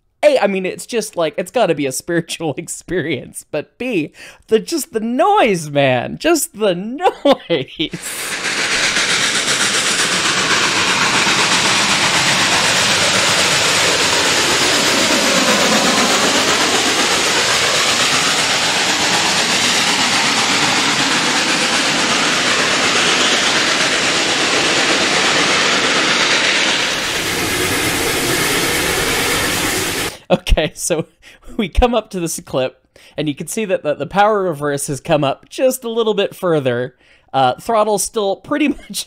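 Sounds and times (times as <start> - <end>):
steam locomotive exhaust roaring: 7.9 - 30.3.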